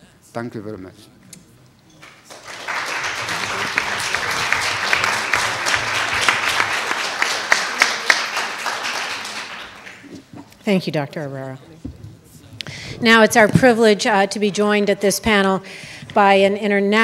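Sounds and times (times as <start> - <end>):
sharp close claps: 2.0 - 10.2
audience applauding: 2.0 - 10.4.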